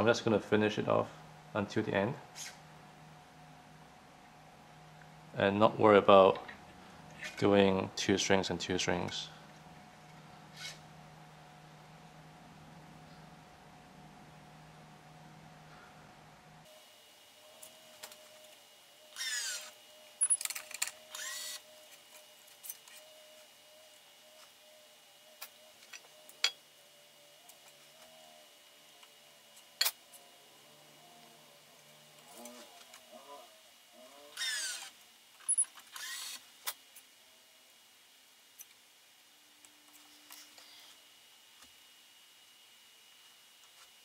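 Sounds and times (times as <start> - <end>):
faint low hum: 0.0 - 44.0
stringing machine tensioner whirring: 16.6 - 37.0.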